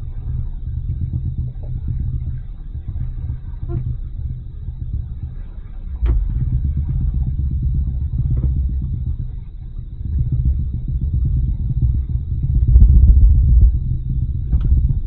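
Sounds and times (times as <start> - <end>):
boat engine rumbling: 0.0 - 15.0
click: 6.0 - 6.3.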